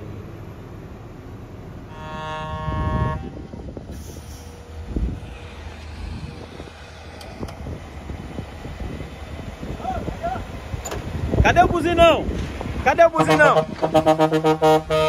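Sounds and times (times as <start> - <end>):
diesel engines running: 0.0 - 15.0
dump truck horn: 1.8 - 3.6, 13.0 - 15.0.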